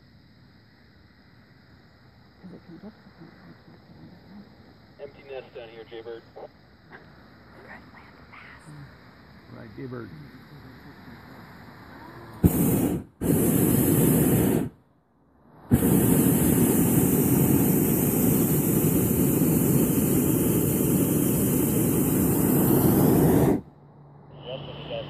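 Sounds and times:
propane burner blasts: 9.2 - 14.8, 15.5 - 23.7, 24.4 - 25.0.

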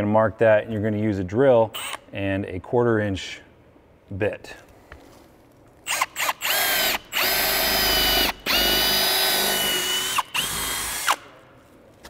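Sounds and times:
cordless drill whining: 5.9 - 11.3
drill trigger blips: 5.9 - 11.3.

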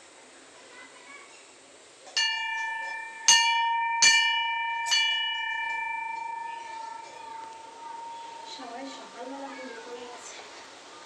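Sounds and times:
temple bell struck by hand: 2.2 - 9.0.

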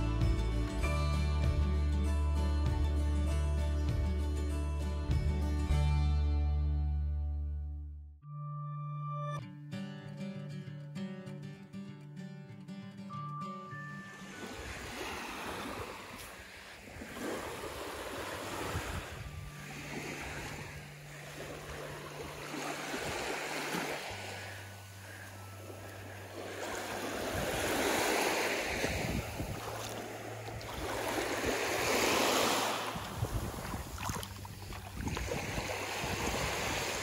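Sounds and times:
sea waves washing up a beach: 14.0 - 37.0
wind on the microphone: 15.6 - 20.9, 28.6 - 37.0.

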